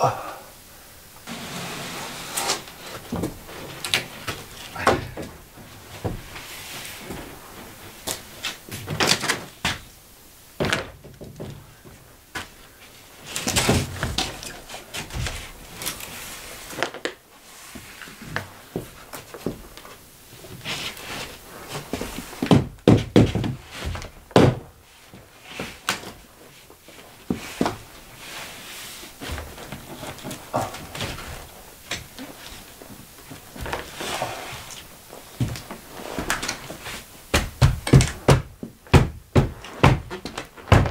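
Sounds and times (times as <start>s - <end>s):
board scraping and rubbing: 1.2s - 4.7s, 33.5s - 35.2s
board knocking on wood: 22.5s - 23.6s, 37.3s - 40.9s.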